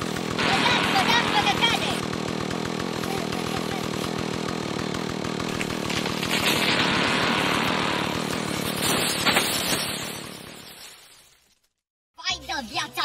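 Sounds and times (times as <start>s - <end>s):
chainsaw running: 0.0s - 10.4s.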